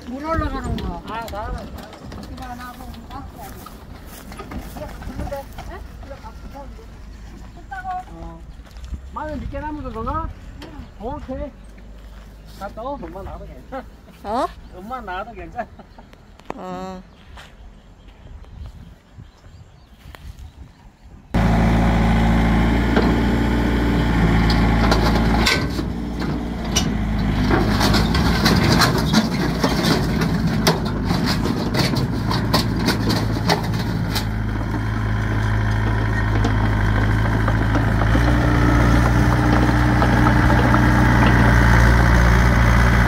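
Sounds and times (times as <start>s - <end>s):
farm machine engine running: 0.0s - 7.8s, 21.4s - 43.0s.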